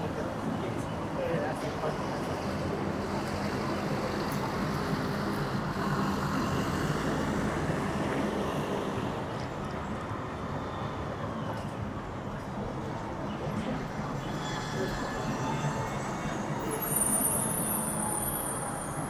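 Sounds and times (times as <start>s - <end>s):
road noise: 0.0s - 19.0s.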